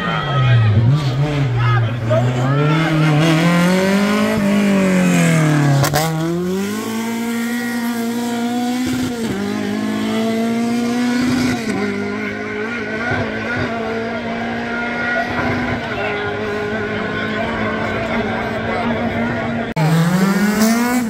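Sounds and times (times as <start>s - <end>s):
rally car engine revving: 0.0s - 21.0s.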